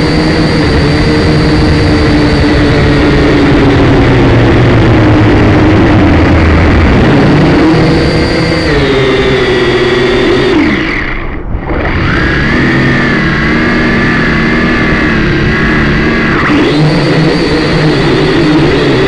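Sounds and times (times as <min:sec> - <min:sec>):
drone motors whining: 0:00.0 - 0:19.0.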